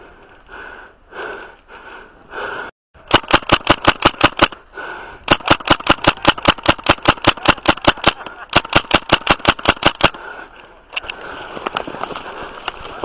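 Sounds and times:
airsoft rifle firing full auto: 0:03.1 - 0:04.6, 0:05.3 - 0:10.2.

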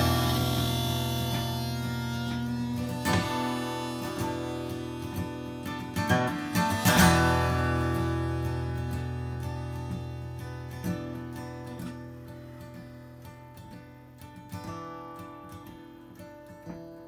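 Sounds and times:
harmonica playing: 0:00.0 - 0:10.0
acoustic guitar strumming: 0:00.0 - 0:17.0.

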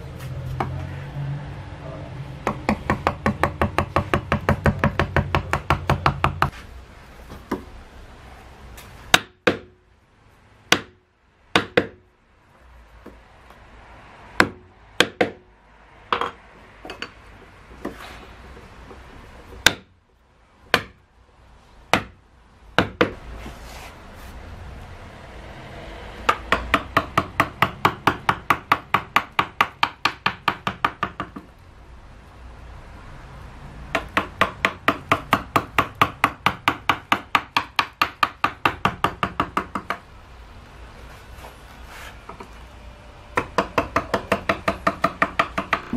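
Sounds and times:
wooden mallet striking chisel: 0:00.5 - 0:00.8, 0:02.4 - 0:06.6, 0:07.4 - 0:07.7, 0:09.1 - 0:09.8, 0:10.7 - 0:12.1, 0:14.4 - 0:15.5, 0:18.9 - 0:20.0, 0:20.7 - 0:21.0, 0:21.9 - 0:22.2, 0:22.8 - 0:23.2, 0:26.3 - 0:31.5, 0:33.9 - 0:40.0, 0:43.4 - 0:45.9.

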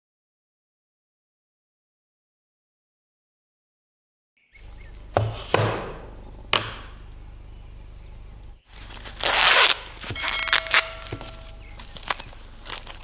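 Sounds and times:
corn husks ripping: 0:08.7 - 0:13.0
sharp knocks: 0:10.0 - 0:11.7.

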